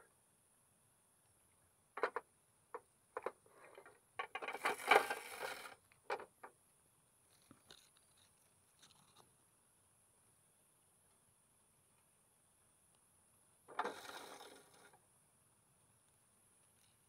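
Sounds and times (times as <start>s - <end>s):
scraping rustle: 3.5s - 5.8s, 13.7s - 15.0s.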